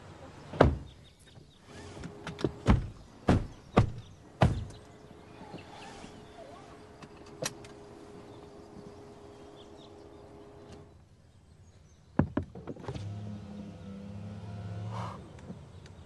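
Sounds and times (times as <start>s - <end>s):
car door thumps: 0.6s - 0.9s, 2.6s - 4.8s.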